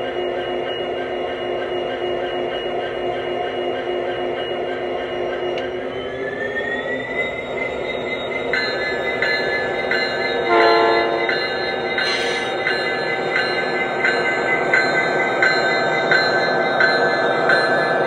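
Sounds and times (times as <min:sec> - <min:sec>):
model locomotive engine rumble: 0:02.9 - 0:18.0
locomotive bell ringing: 0:07.2 - 0:18.0
short horn blast: 0:10.5 - 0:11.3.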